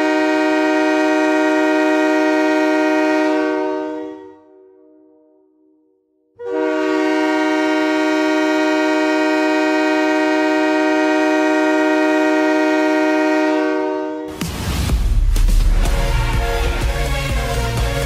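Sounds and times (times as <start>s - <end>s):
goal horn chord: 0.0s - 5.4s, 6.4s - 14.5s, 15.6s - 18.0s.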